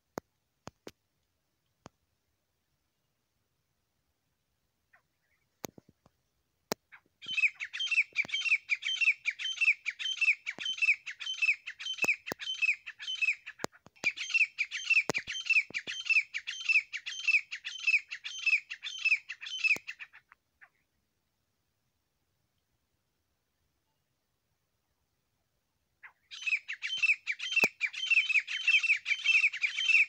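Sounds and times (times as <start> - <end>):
francolin calling: 6.9 - 20.8, 26.0 - 30.0.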